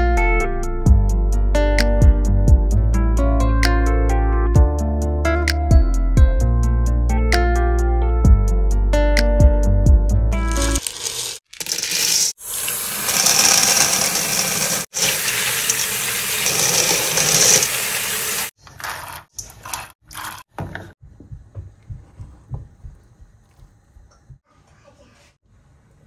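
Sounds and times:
chickpeas rattling into metal bowl: 10.5s - 12.3s, 13.2s - 14.2s
tap water running: 10.5s - 18.5s.

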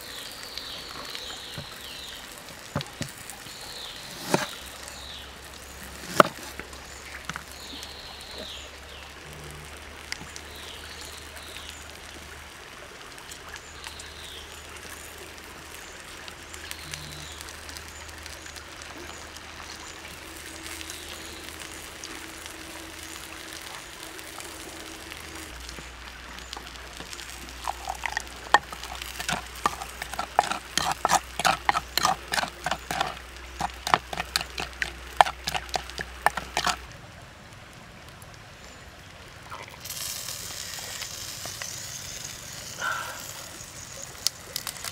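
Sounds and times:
wooden spoon scraping in mortar: 3.8s - 4.6s, 5.8s - 6.6s, 27.0s - 36.8s.

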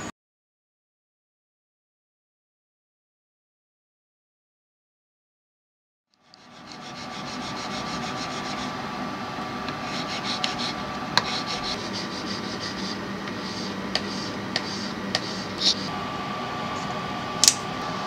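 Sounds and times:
metal file rasping: 6.2s - 8.8s, 9.7s - 15.9s.

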